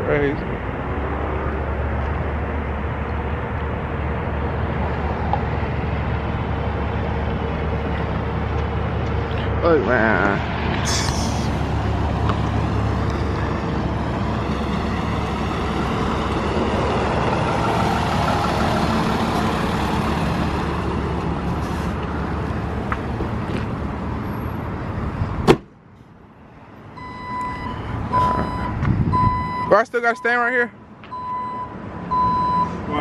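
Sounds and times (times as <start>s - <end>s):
road noise: 0.0s - 33.0s
truck engine rumble: 0.0s - 33.0s
reversing alarm beeping: 27.0s - 30.5s, 31.1s - 32.8s.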